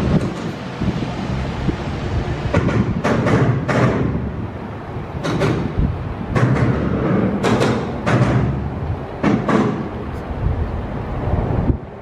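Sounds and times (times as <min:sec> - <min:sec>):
wheel clacks over rail joints: 0:00.0 - 0:00.8, 0:02.4 - 0:04.3, 0:05.1 - 0:10.4
train rumbling: 0:00.0 - 0:12.0.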